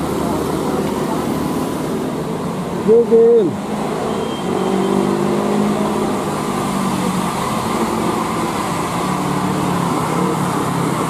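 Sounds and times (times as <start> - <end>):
traffic noise: 0.0 - 11.0.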